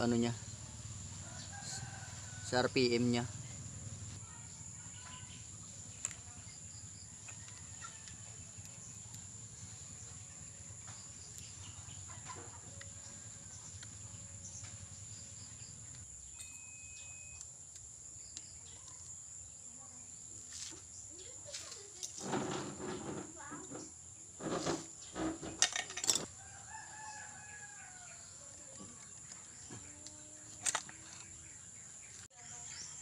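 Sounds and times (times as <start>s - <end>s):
thin high tone: 16.3s - 17.5s.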